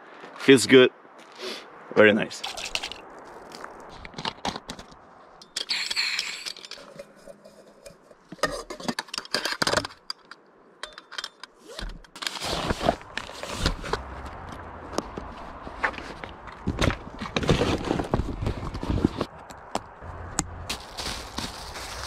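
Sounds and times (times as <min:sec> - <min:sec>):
dry bag rustling: 0:20.7 - 0:22.0.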